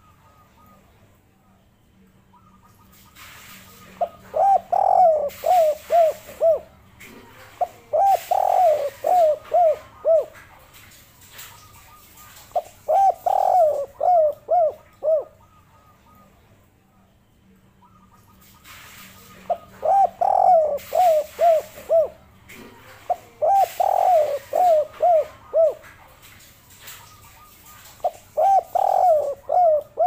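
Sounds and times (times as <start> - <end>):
dove cooing: 3.8 - 10.7, 11.4 - 16.3, 19.3 - 26.0, 26.9 - 30.0.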